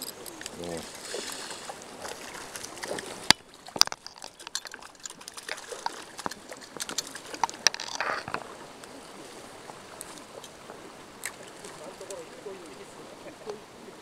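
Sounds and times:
water splashing and sloshing: 0:00.0 - 0:14.0
sharp clicks and knocks: 0:02.8 - 0:08.4.

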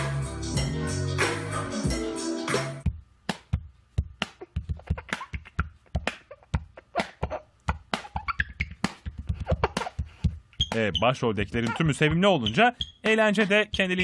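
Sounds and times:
background music: 0:00.0 - 0:02.9
fingers tapping a baby's cheek: 0:03.3 - 0:10.8.

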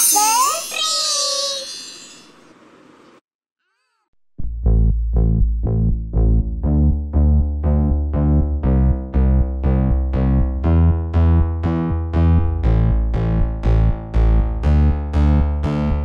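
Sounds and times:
background music with deep bass: 0:04.4 - 0:16.0.

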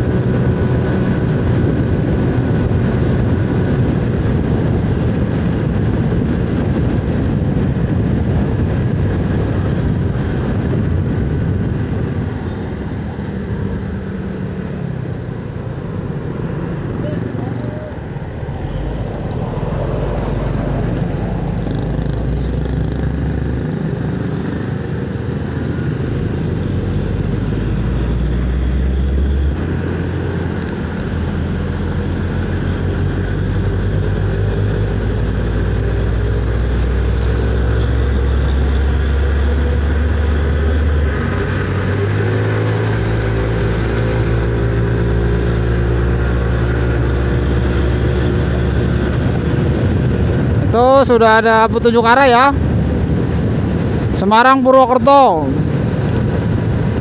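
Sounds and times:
scooter engine hum: 0:00.0 - 0:51.0
trucks passing: 0:00.0 - 0:57.0
wind and tyre noise: 0:00.0 - 0:57.0.

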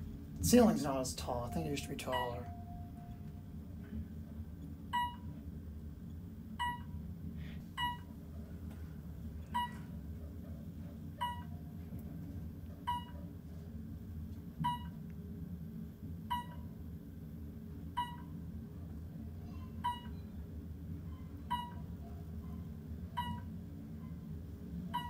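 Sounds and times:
elevator travelling hum: 0:00.0 - 0:25.0
short electronic beeps: 0:01.4 - 0:03.1, 0:05.0 - 0:05.3, 0:06.6 - 0:06.9, 0:07.8 - 0:08.1, 0:16.3 - 0:16.6, 0:19.8 - 0:20.3, 0:21.4 - 0:21.9, 0:23.2 - 0:23.5.

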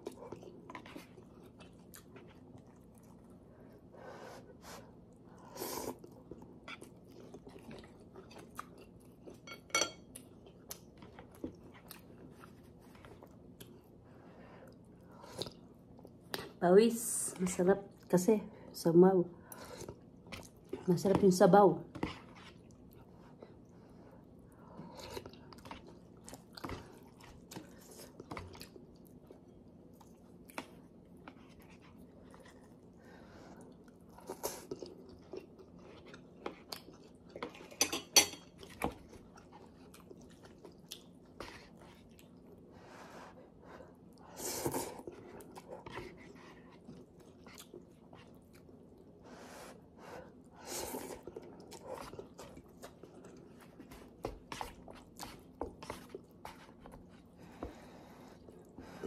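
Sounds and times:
chewing and slurping noodles: 0:00.0 - 0:09.4, 0:22.0 - 0:59.0.

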